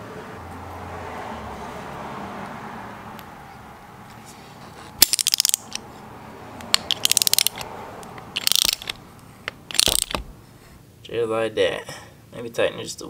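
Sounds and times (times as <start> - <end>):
ratchet wrench clicking: 5.0 - 5.8, 6.6 - 10.2.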